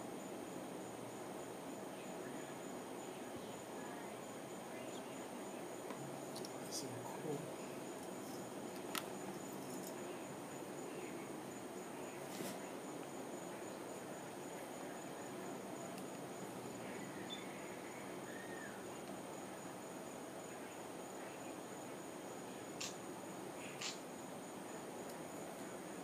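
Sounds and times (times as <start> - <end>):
insects trilling: 0.0 - 26.0
soft background hiss: 0.0 - 26.0
single click: 23.8 - 24.0.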